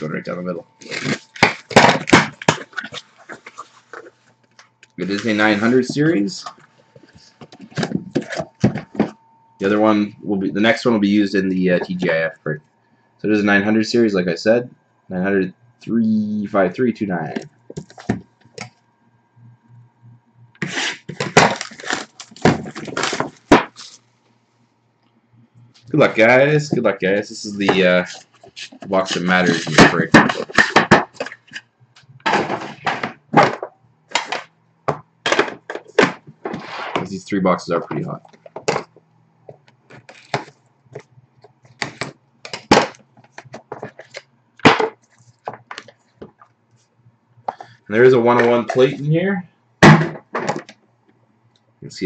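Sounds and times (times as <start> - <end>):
packaging scraping and crinkling: 0.8 - 4.2, 20.6 - 24.0
box being handled: 5.0 - 9.2
clicks and crinkles: 20.6 - 24.0, 38.0 - 46.9.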